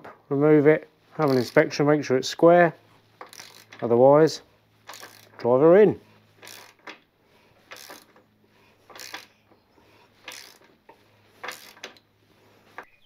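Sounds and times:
spanner rasping on nut: 0:01.2 - 0:01.7, 0:03.2 - 0:03.8, 0:04.8 - 0:05.4, 0:06.4 - 0:07.0, 0:07.6 - 0:08.2, 0:08.8 - 0:12.1.

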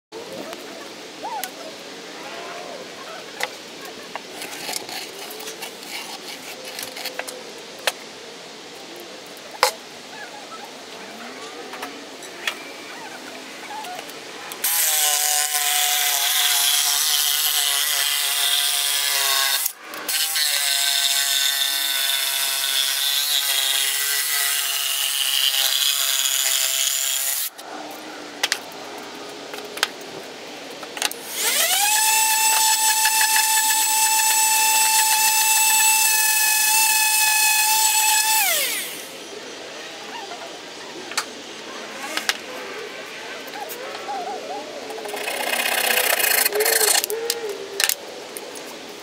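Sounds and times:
electric jigsaw cutting wood: 0:14.6 - 0:27.5, 0:31.2 - 0:39.2.

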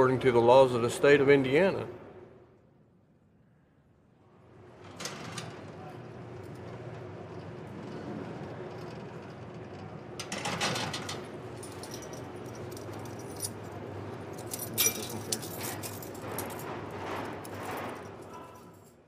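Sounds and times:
low steady hum: 0:00.0 - 0:19.0
metal handcuffs and chains jangling: 0:11.0 - 0:19.0.

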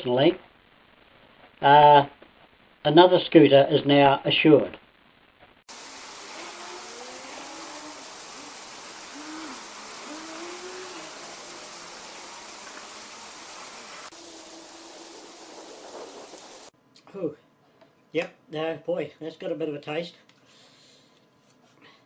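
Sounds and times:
fountain water splashing: 0:05.7 - 0:16.7
low rising-and-falling calls: 0:06.2 - 0:16.7.

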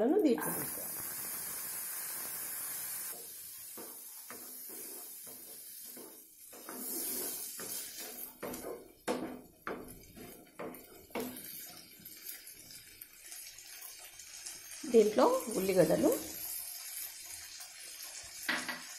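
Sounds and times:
steady hiss: 0:00.4 - 0:08.4
spatula scraping a pan: 0:03.1 - 0:14.8.

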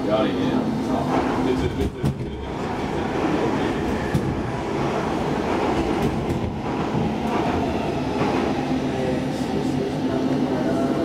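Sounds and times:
subway wheels rumbling on rails: 0:00.0 - 0:11.0.

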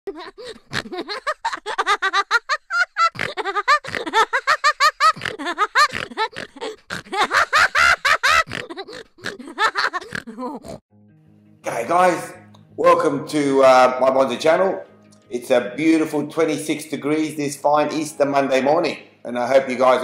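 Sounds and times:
hearty laughter: 0:00.1 - 0:10.7.

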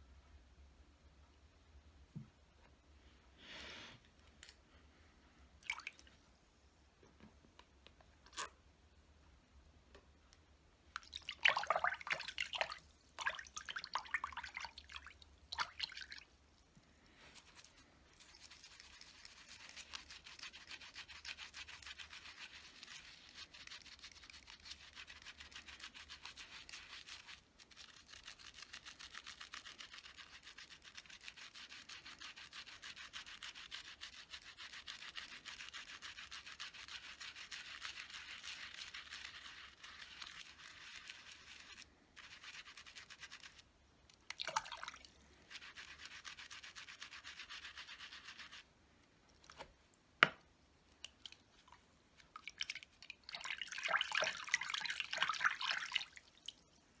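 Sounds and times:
brush bristles swishing: 0:17.2 - 0:43.6, 0:45.4 - 0:48.6.

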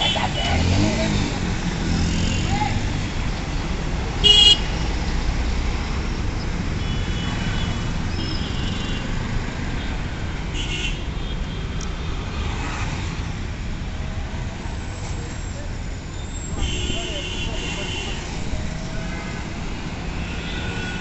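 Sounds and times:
road traffic rumbling: 0:00.0 - 0:21.0
vehicle horn: 0:04.2 - 0:04.7, 0:16.6 - 0:18.2.

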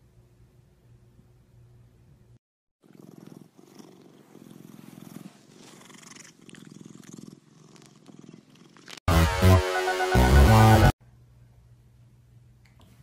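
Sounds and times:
cat purring: 0:02.8 - 0:09.0
loud music: 0:09.1 - 0:10.9.

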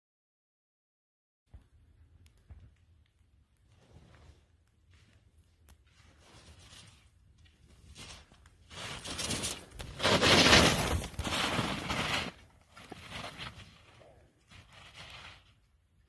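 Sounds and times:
skis scraping over snow: 0:07.7 - 0:15.7.

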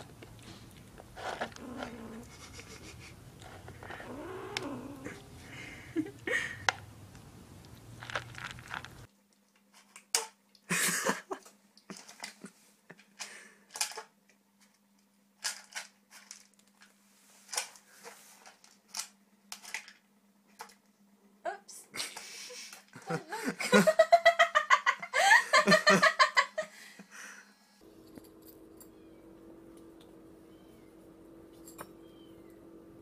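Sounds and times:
kitten crunching dry kibble: 0:00.0 - 0:05.4, 0:06.6 - 0:10.0
faint steady hum: 0:00.0 - 0:33.0.

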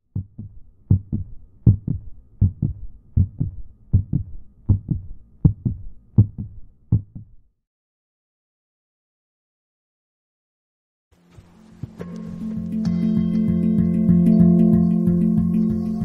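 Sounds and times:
heartbeat: 0:00.1 - 0:07.4.

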